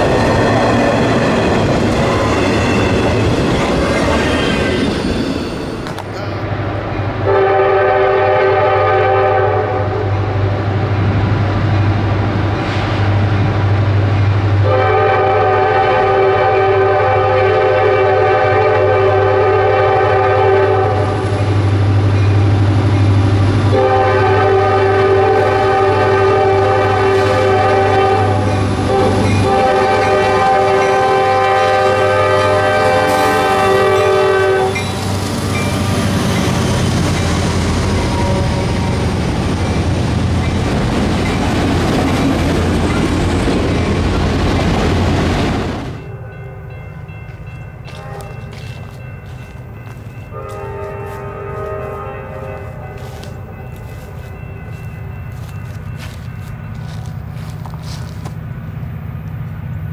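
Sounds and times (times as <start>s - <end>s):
locomotive air horn blasts: 7.2s - 10.1s, 14.6s - 21.4s, 23.7s - 35.0s, 38.0s - 38.6s, 47.9s - 48.6s, 50.3s - 53.7s.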